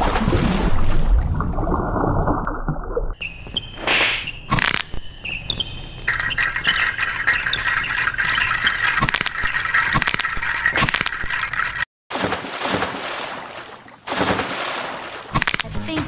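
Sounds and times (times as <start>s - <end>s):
dense rattling and scraping: 6.1s - 11.9s.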